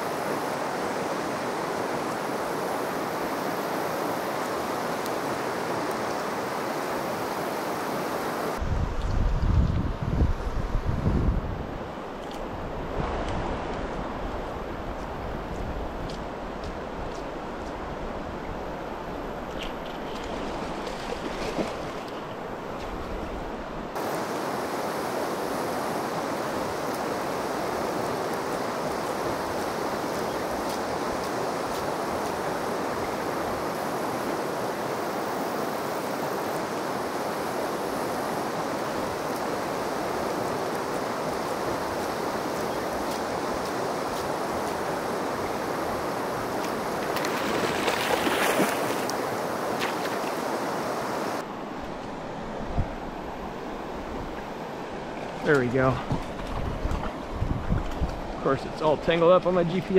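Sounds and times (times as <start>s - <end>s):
river water flowing over cobbles: 0.0s - 9.2s, 11.6s - 59.9s
fish thrashing and splashing: 47.0s - 49.1s.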